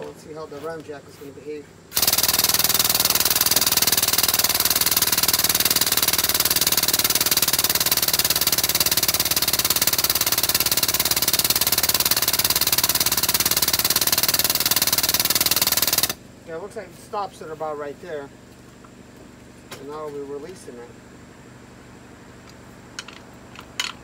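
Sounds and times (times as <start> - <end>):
air-driven hydraulic pump chattering: 1.9 - 16.2.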